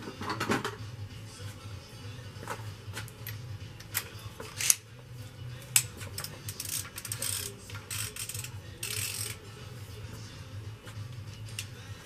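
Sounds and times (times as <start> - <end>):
rapid ratchet clicking: 5.8 - 9.4.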